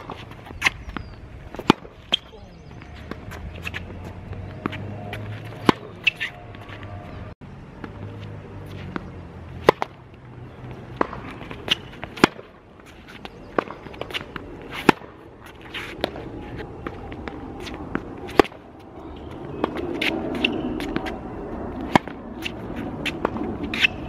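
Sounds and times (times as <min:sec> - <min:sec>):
racquet striking tennis ball: 0:00.0 - 0:02.3, 0:04.6 - 0:06.9, 0:08.9 - 0:10.0, 0:10.9 - 0:12.6, 0:13.2 - 0:18.6, 0:19.5 - 0:24.0
distant racquet hits: 0:00.0 - 0:07.2, 0:07.8 - 0:24.0
tennis ball bounces: 0:00.0 - 0:07.2, 0:07.8 - 0:18.6, 0:19.2 - 0:24.0.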